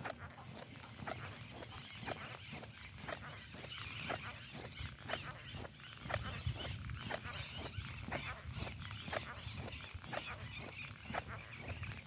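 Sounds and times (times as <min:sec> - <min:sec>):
footsteps on pavement: 0:00.0 - 0:12.0.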